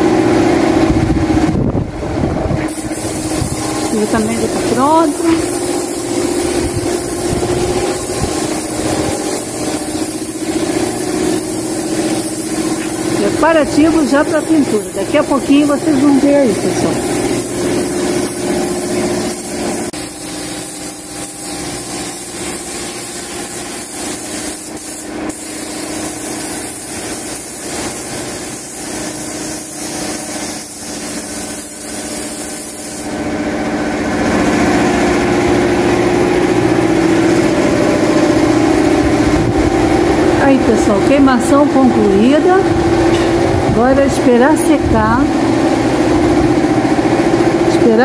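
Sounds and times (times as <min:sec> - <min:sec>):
paint spray gun hissing: 0:02.7 - 0:33.2.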